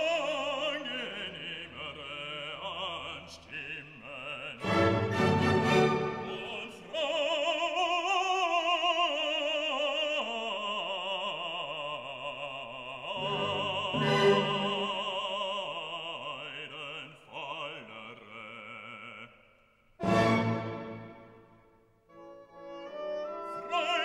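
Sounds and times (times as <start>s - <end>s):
opera singer with vibrato: 0.0s - 19.4s, 22.8s - 24.0s
classical accompaniment: 4.6s - 6.8s, 13.2s - 15.4s, 20.0s - 24.0s.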